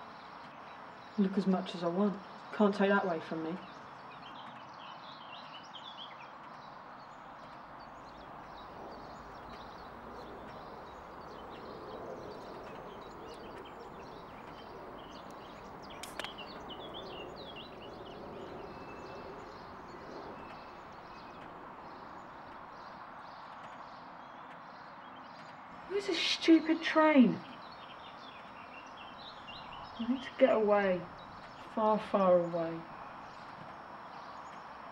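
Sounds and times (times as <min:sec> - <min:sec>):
outdoor background hiss: 0:00.0 - 0:34.9
birds chirping: 0:01.0 - 0:34.7
sharp click: 0:15.9 - 0:16.7.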